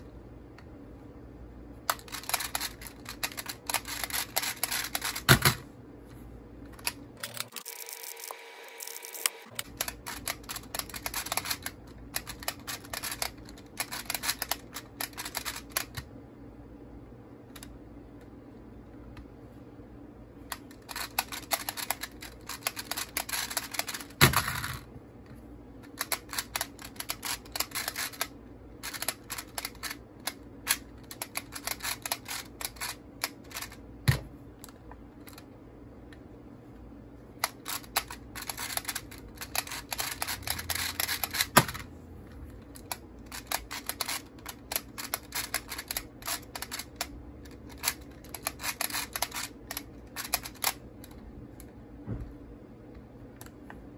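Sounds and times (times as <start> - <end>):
rapid clicking of puzzle dials: 1.9 - 5.6, 6.8 - 16.0, 20.5 - 24.8, 25.8 - 33.8, 37.4 - 41.8, 42.6 - 51.2.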